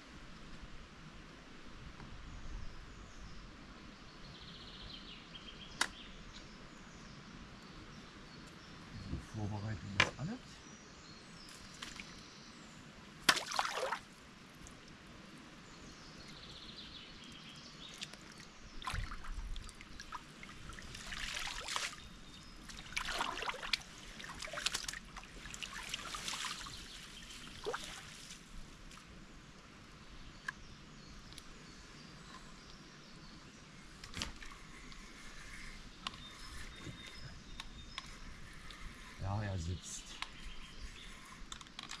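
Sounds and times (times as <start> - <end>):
sharp click: 5.8 - 6.5
water trickling and sloshing: 13.3 - 15.0, 17.8 - 29.1.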